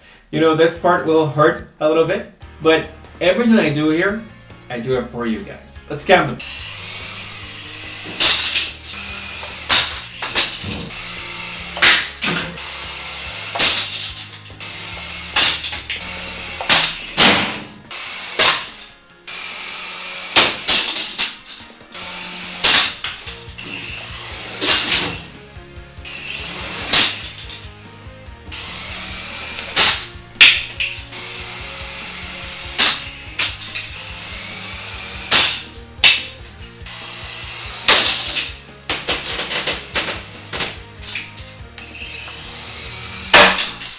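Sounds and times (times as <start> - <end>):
toy helicopter crashing on floor: 8.1 - 8.8, 9.4 - 10.9, 13.5 - 14.3, 15.0 - 16.0, 16.6 - 17.8, 18.4 - 18.9, 20.3 - 21.6, 22.6 - 23.6, 24.6 - 25.3, 26.8 - 27.6, 29.6 - 30.9, 32.7 - 33.8, 35.3 - 36.3, 37.8 - 41.2, 43.3 - 43.9.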